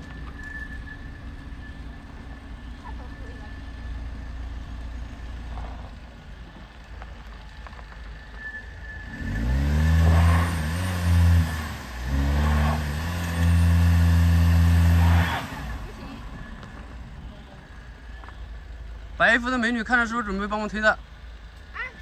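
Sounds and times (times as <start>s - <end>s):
car engine revving: 8.8s - 17.7s.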